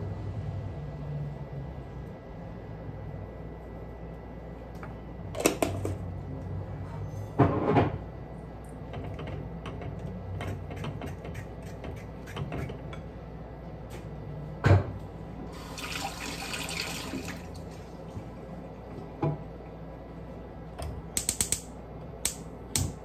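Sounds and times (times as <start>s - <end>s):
kitchen knocks and clatter: 7.4s - 8.0s.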